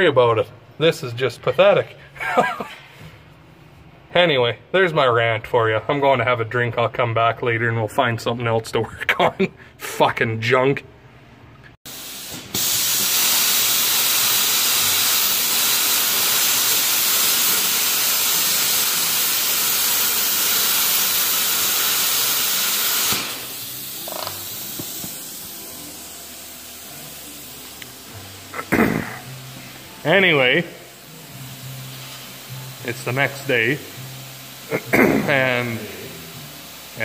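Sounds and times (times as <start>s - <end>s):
plasma cutter hissing: 11.9s - 37.0s.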